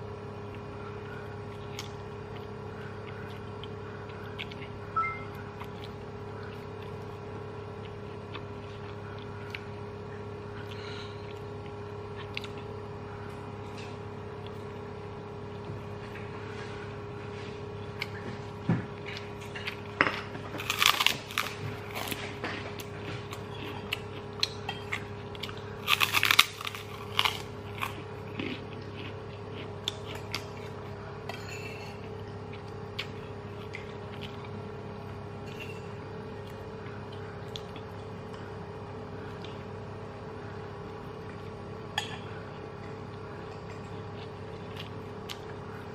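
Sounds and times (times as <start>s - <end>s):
low machine hum: 0.0s - 45.9s
eating clicks and chewing: 0.4s - 9.9s, 10.6s - 12.8s, 22.8s - 31.0s, 32.1s - 34.7s, 36.3s - 38.5s, 42.7s - 45.9s
cracker crunching: 19.0s - 31.0s.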